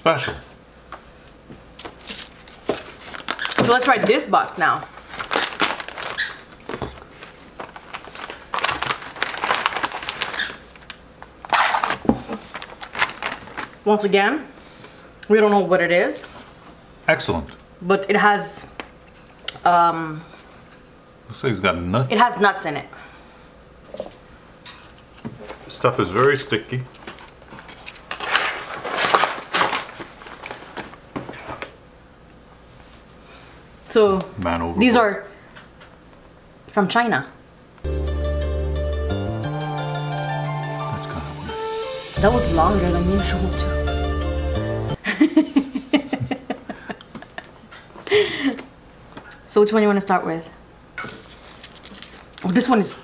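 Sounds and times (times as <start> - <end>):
plastic packaging crinkling: 1.8 - 13.8, 26.9 - 31.1, 51.2 - 52.5.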